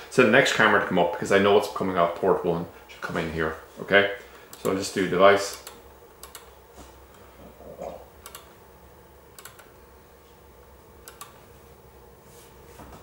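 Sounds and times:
computer mouse clicking: 0:05.5 - 0:06.5, 0:08.2 - 0:08.5, 0:09.4 - 0:09.7, 0:11.0 - 0:11.4.

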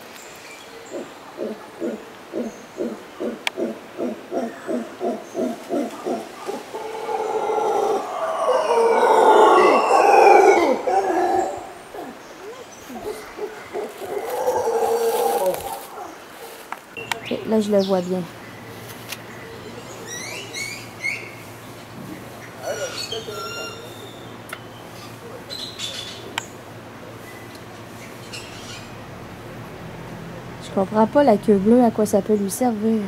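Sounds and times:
howler monkey howling: 0:00.8 - 0:16.2, 0:22.6 - 0:24.3.

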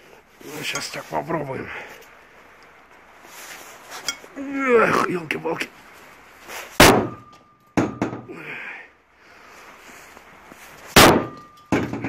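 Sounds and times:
sledgehammer striking metal: 0:06.8 - 0:08.3, 0:11.0 - 0:12.0.

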